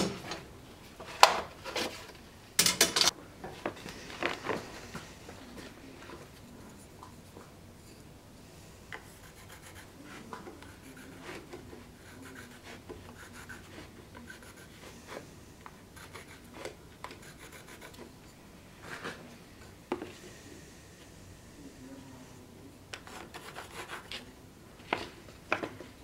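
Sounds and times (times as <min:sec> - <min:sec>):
pencil scratching on wood: 0:09.0 - 0:15.2, 0:16.0 - 0:18.0, 0:23.0 - 0:24.3.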